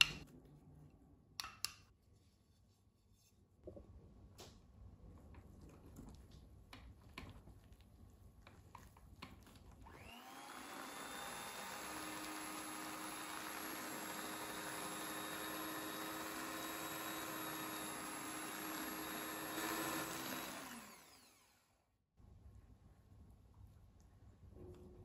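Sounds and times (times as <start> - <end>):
electric hand mixer running: 9.8 - 21.8.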